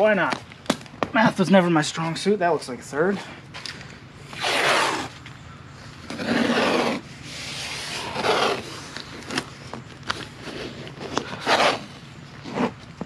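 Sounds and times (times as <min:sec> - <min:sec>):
tape ripping off roll: 0:04.3 - 0:05.2, 0:06.0 - 0:12.8
tape clicks and crinkles: 0:08.0 - 0:13.0.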